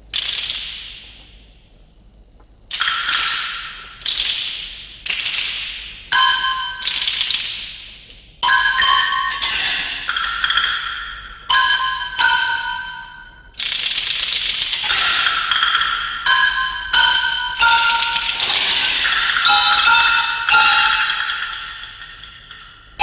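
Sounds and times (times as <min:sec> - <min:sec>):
ringing metallic strikes: 0:06.1 - 0:07.0, 0:08.4 - 0:13.6, 0:14.8 - 0:23.0.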